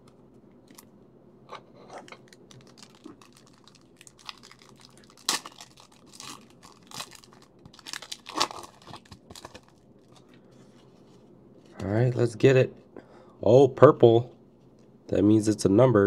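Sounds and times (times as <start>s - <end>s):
foil wrapper tearing and crinkling: 2.3s - 10.3s.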